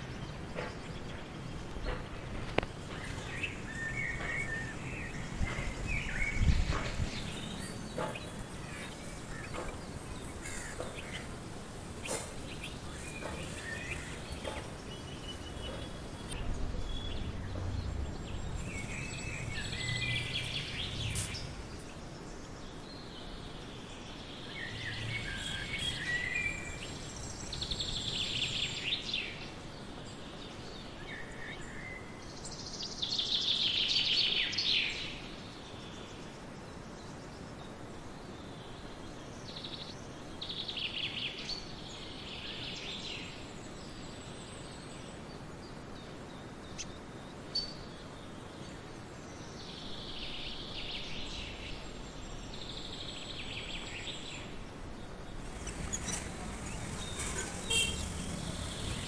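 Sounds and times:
birds chirping in high trills: 0:00.0 - 0:22.5, 0:24.3 - 0:29.4, 0:49.9 - 0:59.0
steady background hiss: 0:00.0 - 0:59.0.

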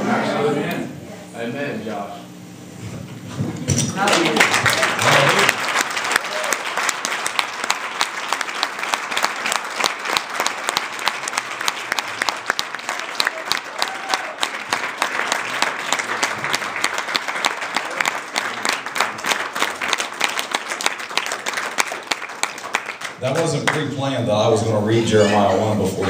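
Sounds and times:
congregation applauding: 0:04.0 - 0:24.0.

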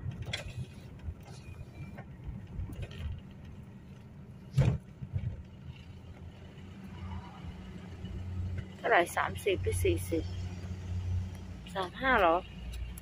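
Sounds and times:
car engine and road rumble: 0:00.0 - 0:13.0.

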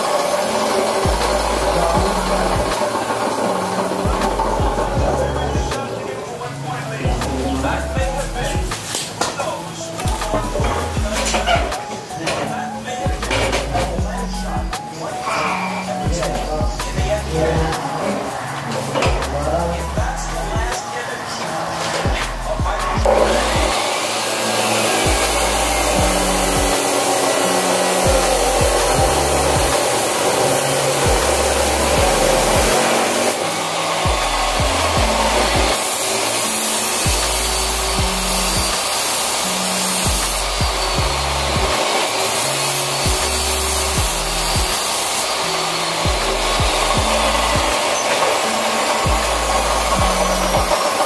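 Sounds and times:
chop saw grinding through steel: 0:00.0 - 0:06.1, 0:20.8 - 0:51.0.

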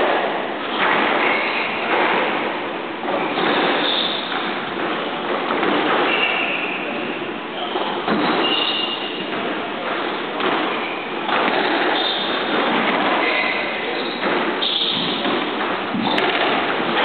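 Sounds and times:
noisy hall din: 0:00.0 - 0:17.0
squash ball thudding: 0:00.1 - 0:17.0
shoes squeaking on wooden floor: 0:05.9 - 0:09.3, 0:09.9 - 0:16.3.

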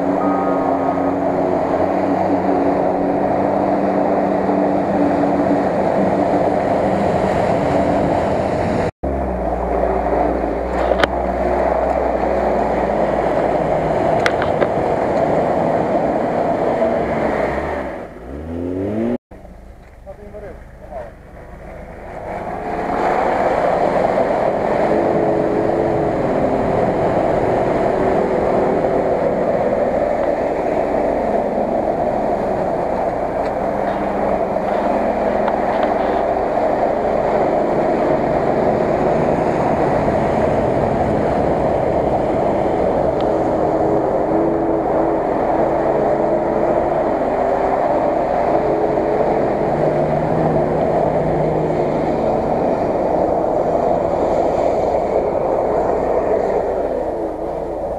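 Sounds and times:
engine and water splashing: 0:00.0 - 0:57.9
wavering engine note: 0:00.0 - 0:57.9.

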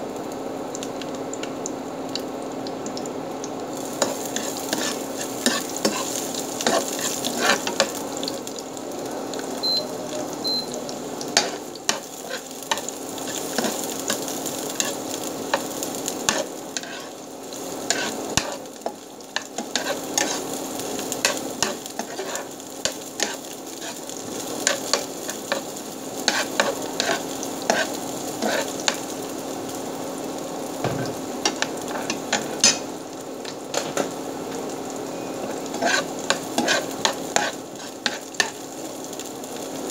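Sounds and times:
garlic and onion sizzling in oil: 0:00.0 - 0:39.9
metal spatula scraping a pan: 0:04.0 - 0:08.0, 0:16.3 - 0:17.2, 0:17.8 - 0:18.6, 0:19.6 - 0:20.5, 0:21.2 - 0:24.0, 0:26.3 - 0:29.0, 0:35.4 - 0:38.6.

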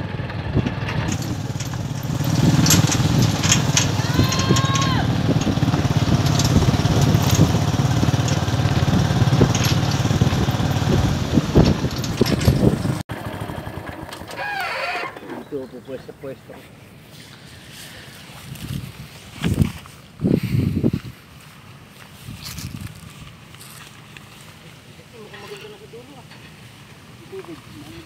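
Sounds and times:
small engine running: 0:00.0 - 0:15.2
brief high rising call: 0:03.8 - 0:05.2.

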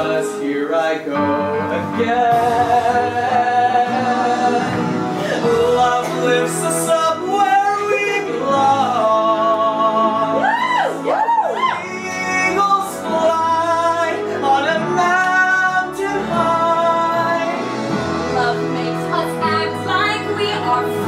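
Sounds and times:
instrumental accompaniment: 0:00.0 - 0:21.0
man and woman singing duet: 0:00.0 - 0:21.0.

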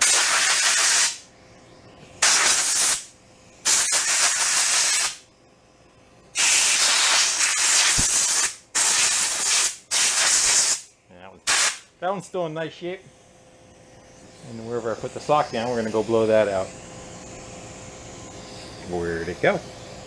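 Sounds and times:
compressed air blow gun blasting: 0:00.0 - 0:01.2, 0:02.2 - 0:05.2, 0:06.4 - 0:11.9.

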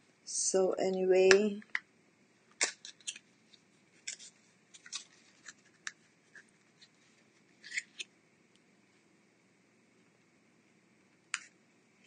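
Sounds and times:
packaging clicks and rustles: 0:04.0 - 0:06.9.

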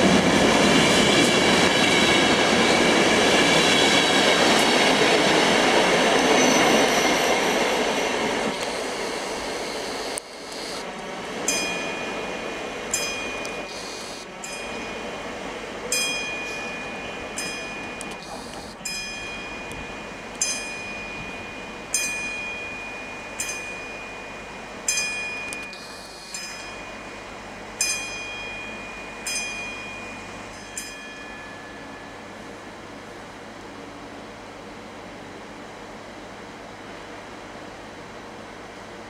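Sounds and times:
train rumbling: 0:00.0 - 0:39.0
metallic bell strikes: 0:11.5 - 0:13.7, 0:14.4 - 0:15.0, 0:15.9 - 0:18.2, 0:18.8 - 0:32.4.

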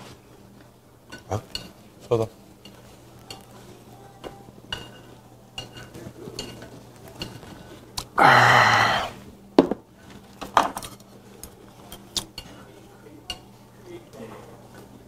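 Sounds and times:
glass and tableware clinking: 0:04.2 - 0:07.6
man sighing ahh: 0:08.2 - 0:09.2.

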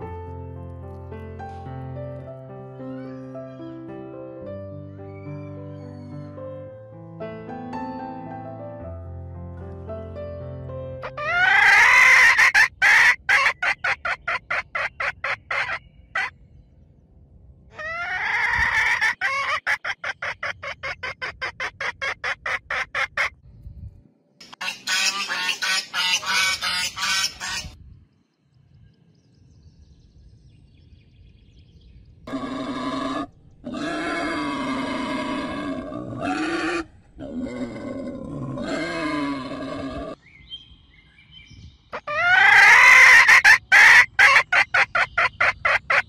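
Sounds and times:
fowl calling rapidly: 0:11.0 - 0:16.3, 0:17.8 - 0:23.3, 0:24.5 - 0:27.8, 0:42.0 - 0:46.0
fowl squawk: 0:11.0 - 0:16.3, 0:17.8 - 0:23.3, 0:24.5 - 0:27.8, 0:42.0 - 0:46.0.

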